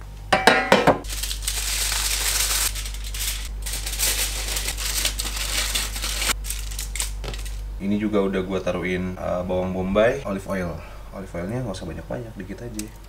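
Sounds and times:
aluminium foil crinkling: 1.0s - 7.7s.

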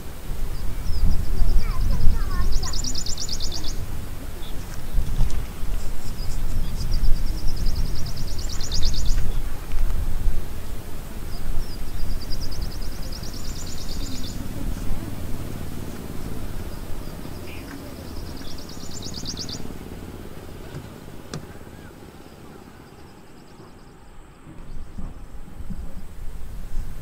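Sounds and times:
low wind rumble: 0.0s - 27.0s
bird trilling: 0.4s - 9.6s, 10.3s - 25.2s.

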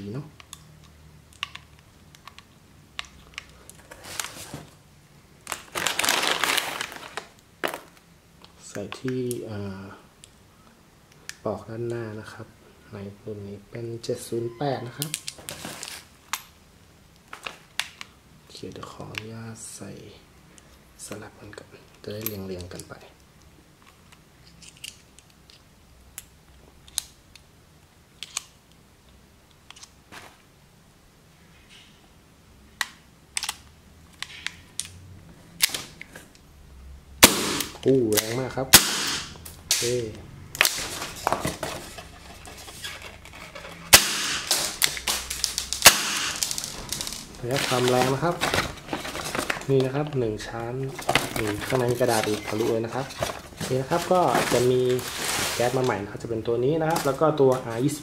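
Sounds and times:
bubble wrap rustling: 3.8s - 4.8s, 5.4s - 8.0s, 15.3s - 16.2s, 30.1s - 30.5s, 39.8s - 56.2s
brass shells clicking: 43.9s - 47.3s.

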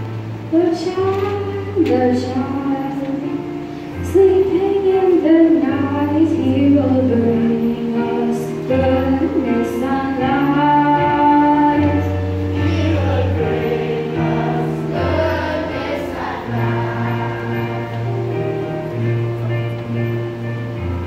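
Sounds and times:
electronic keyboard: 0.0s - 21.0s
children's choir singing: 7.1s - 18.8s.

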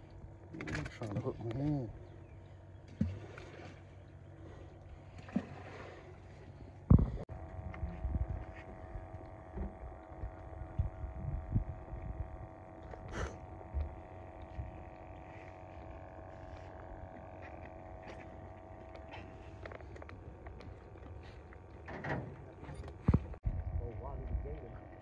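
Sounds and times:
faint steady hum: 0.0s - 25.0s
wind rumbling on microphone: 6.9s - 15.2s, 22.5s - 25.0s.

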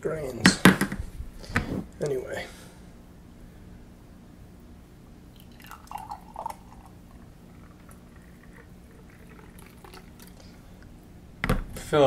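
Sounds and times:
faint steady hum: 0.0s - 12.0s
thick liquid poured into a mug: 5.4s - 10.6s.

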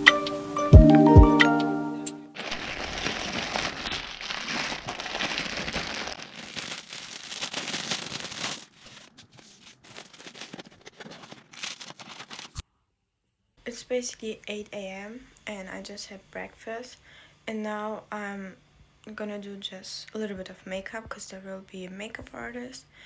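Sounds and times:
plastic packaging crinkling: 2.4s - 12.6s.

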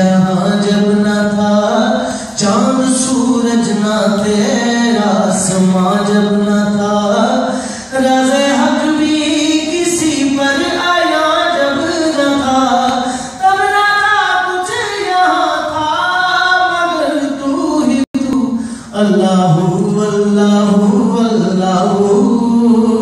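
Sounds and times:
man singing unaccompanied: 0.0s - 23.0s.

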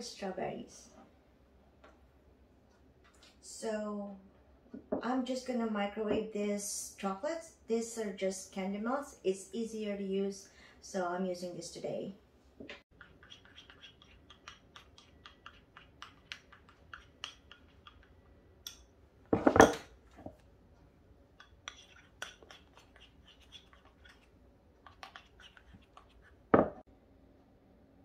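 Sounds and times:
metal spoon scraping ceramic bowl: 12.9s - 18.8s, 21.4s - 26.3s.

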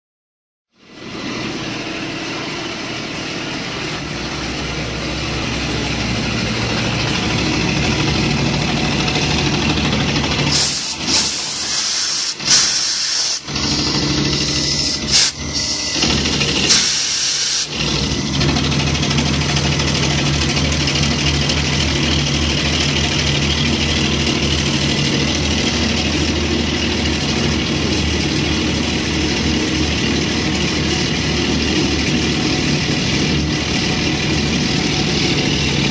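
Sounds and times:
mill cutting metal hum: 0.7s - 35.9s
loud hiss: 10.5s - 17.8s.

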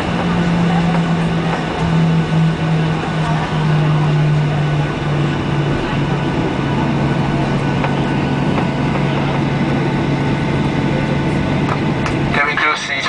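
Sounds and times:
airplane engine drone: 0.0s - 13.0s
constant low hum: 0.0s - 13.0s.

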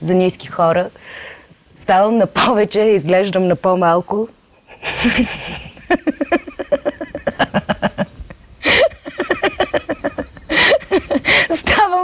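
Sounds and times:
sharp breaths: 0.9s - 1.7s
woman laughing: 4.7s - 12.0s.

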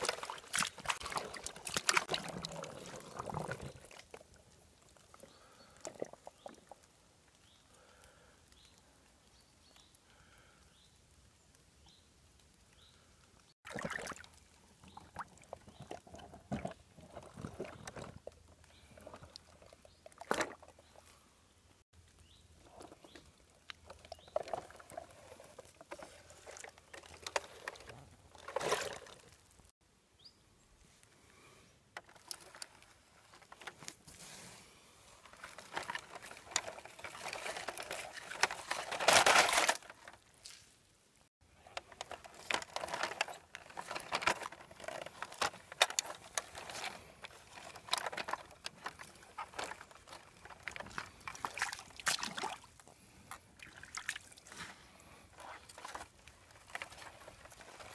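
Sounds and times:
stream water splashing: 0.0s - 4.5s, 13.6s - 15.6s, 50.7s - 54.5s
toy tyres rolling over soil: 0.0s - 11.2s, 13.8s - 29.7s, 31.4s - 40.8s, 41.4s - 51.6s, 54.4s - 57.9s.

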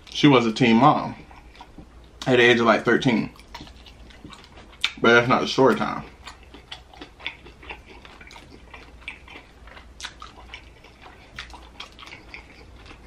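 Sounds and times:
person chewing food: 1.0s - 2.4s, 3.0s - 13.0s.

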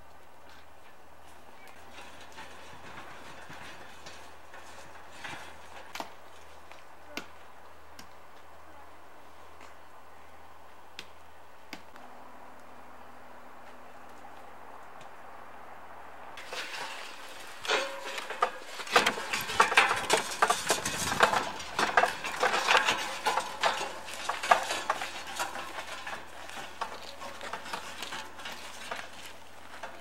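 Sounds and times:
handcart clattering on dirt trail: 0.1s - 7.6s, 16.4s - 30.0s.

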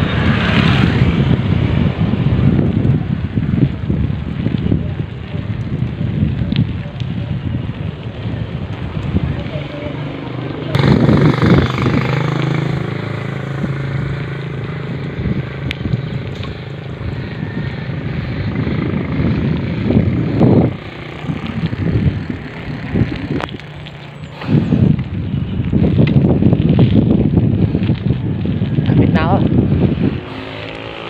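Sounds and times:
wind buffeting microphone: 0.0s - 31.0s
vehicle engine droning: 6.1s - 28.8s.

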